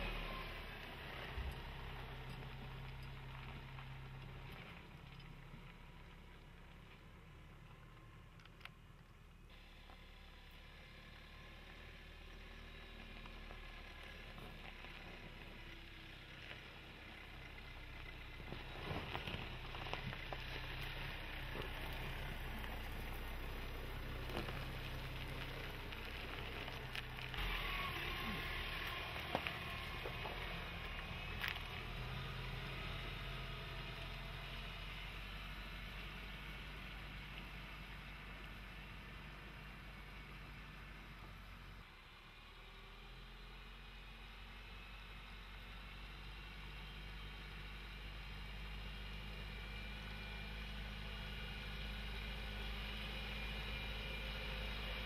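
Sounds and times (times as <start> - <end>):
diesel engine running low: 0.0 - 55.0
tyres crunching on gravel: 12.9 - 34.8.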